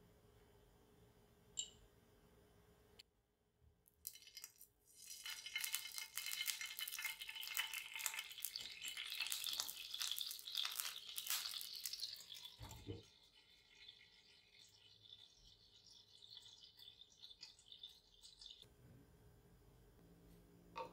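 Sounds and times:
water sizzling in hot pan: 0:04.9 - 0:18.6.

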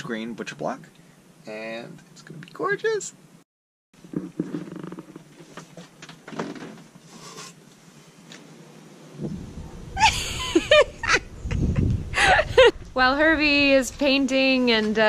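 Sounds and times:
wind rumbling on microphone: 0:09.1 - 0:15.0.

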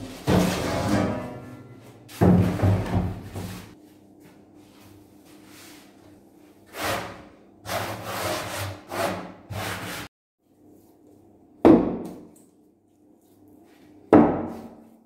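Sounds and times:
hand scraping flour on wood: 0:06.7 - 0:10.1.

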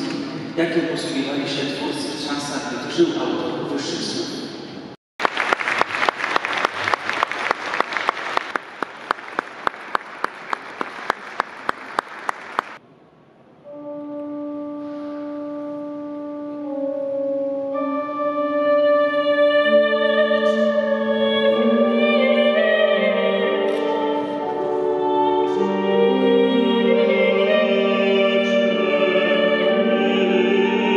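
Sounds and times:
congregation applauding: 0:05.2 - 0:12.8
steady beat of claps: 0:05.2 - 0:12.8
string ensemble slow music: 0:13.6 - 0:30.9.

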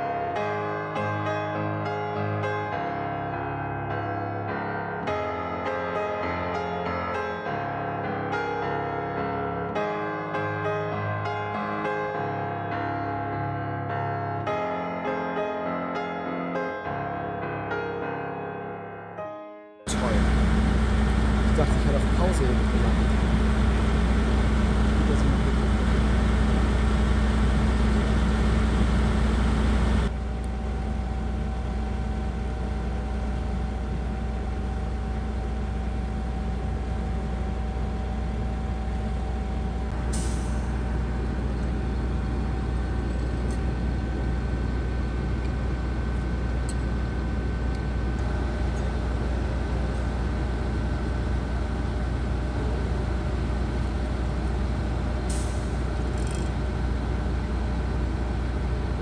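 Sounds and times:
diesel truck engine running: 0:19.9 - 0:59.0
high whine: 0:19.9 - 0:59.0.

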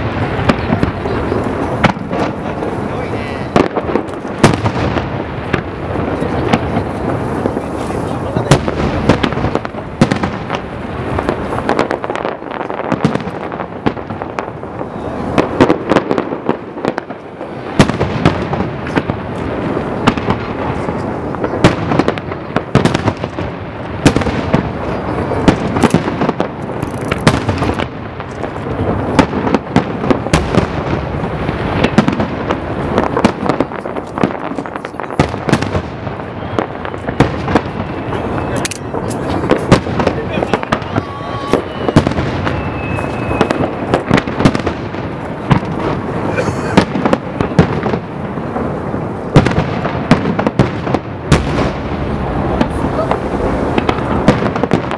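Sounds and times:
firework shells bursting: 0:15.4 - 0:54.9.

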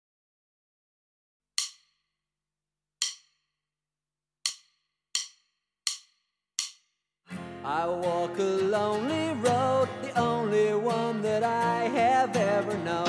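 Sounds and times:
woodblock count-in clicks: 0:01.6 - 0:01.9, 0:03.0 - 0:03.4, 0:04.5 - 0:06.9.

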